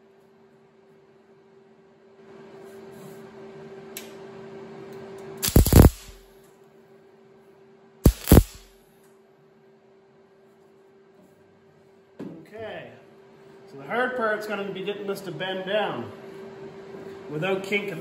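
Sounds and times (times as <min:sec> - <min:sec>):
welding arc crackling: 0:05.4 - 0:06.2, 0:08.0 - 0:08.7
steady low hum: 0:05.4 - 0:06.3, 0:08.0 - 0:08.8.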